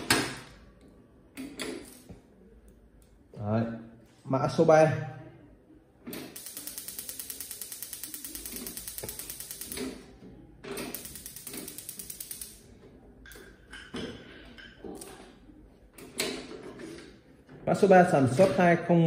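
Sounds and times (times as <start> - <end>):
gas stove igniter ticking: 6.4 - 9.9, 10.9 - 12.6.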